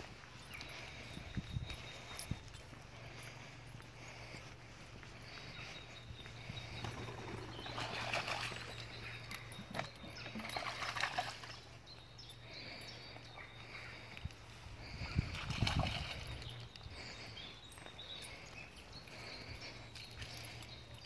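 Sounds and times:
dogs splashing in water: 0:07.5 - 0:11.6, 0:15.2 - 0:16.5.

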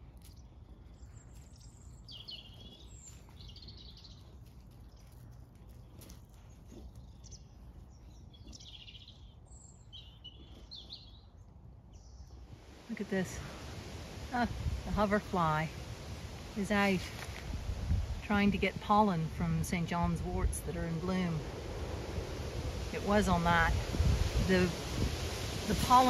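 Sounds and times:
small birds chirping: 0:00.0 - 0:13.7
low outdoor rumble: 0:00.0 - 0:26.0.

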